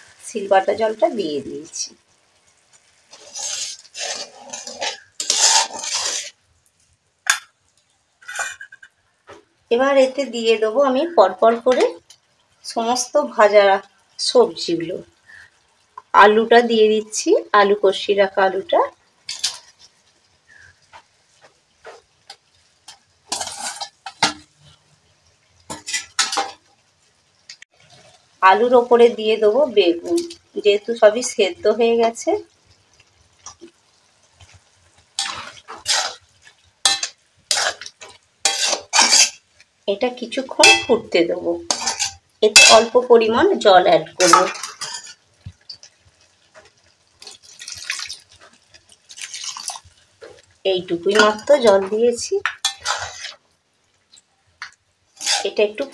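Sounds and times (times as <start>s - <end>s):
metal spatula scraping a pan: 2.7s - 6.4s, 8.2s - 9.4s, 19.3s - 24.9s, 25.7s - 26.6s, 34.4s - 39.6s, 40.4s - 43.4s, 44.2s - 47.4s, 48.0s - 53.5s, 54.1s - 55.9s.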